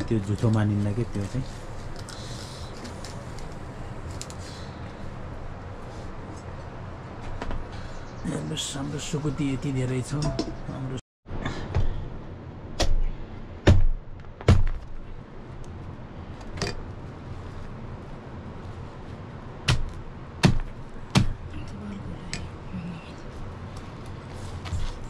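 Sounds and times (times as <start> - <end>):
heavy knife chopping meat: 19.7 - 21.4.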